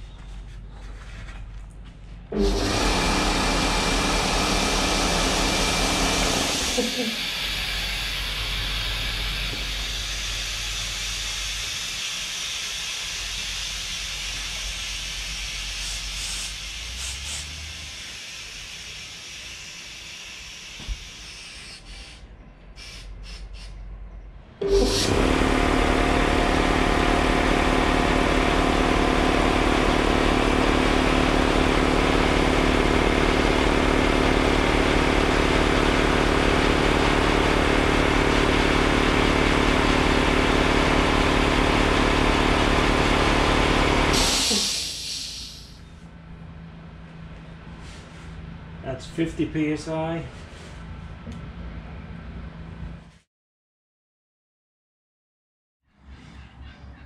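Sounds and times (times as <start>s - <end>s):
air compressor running: 2.2s - 23.8s, 24.6s - 49.5s
compressed air hissing: 6.8s - 23.9s, 24.6s - 25.2s, 44.1s - 45.8s.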